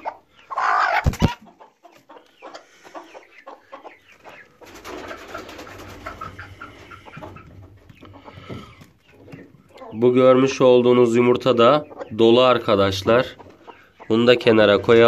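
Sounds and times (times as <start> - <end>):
hen clucking: 0.0 - 15.0.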